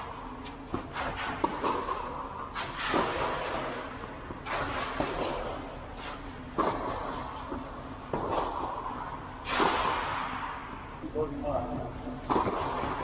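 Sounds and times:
tennis racquet hitting ball: 0.7 - 2.1, 12.3 - 13.0.

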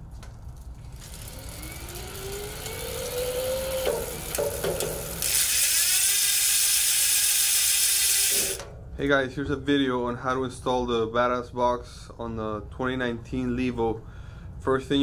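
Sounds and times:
electric bike motor whirring: 0.8 - 8.7
drivetrain clicks: 2.6 - 5.2.

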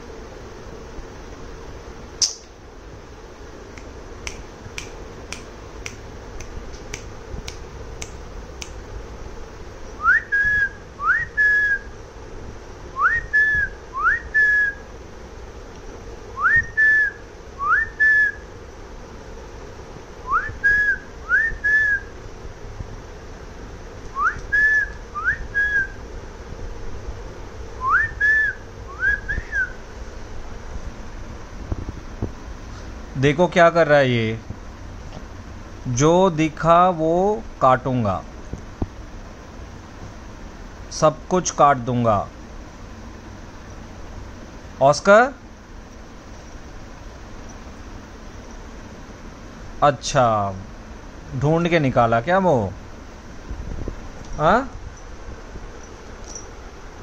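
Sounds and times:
sharp clicks: 3.7 - 8.8
person whistling two-note calls: 10.0 - 11.9, 13.0 - 14.8, 16.4 - 18.4, 24.1 - 26.0, 27.8 - 29.8.

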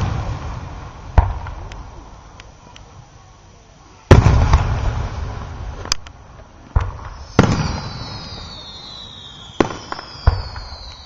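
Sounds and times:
firework shells bursting: 4.1 - 11.0
high whistle falling in pitch: 7.1 - 11.0.

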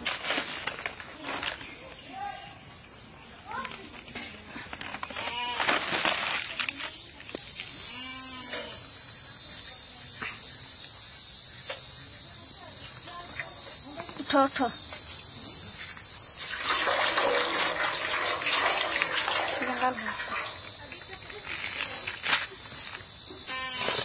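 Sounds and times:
insects droning shrilly: 4.7 - 24.0
splashing in water: 16.4 - 20.9.

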